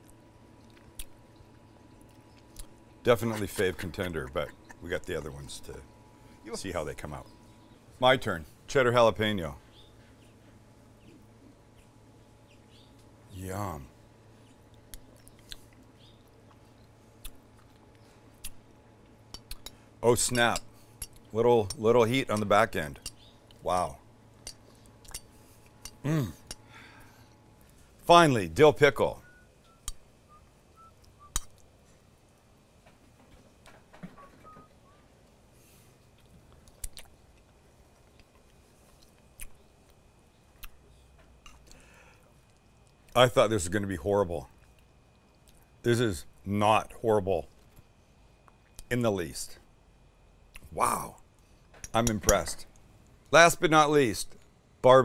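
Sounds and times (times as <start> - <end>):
person chewing food: 0.0 - 3.6, 14.4 - 19.8, 24.4 - 26.7, 35.9 - 43.2, 44.6 - 45.8
mouth clicks: 17.2 - 17.8.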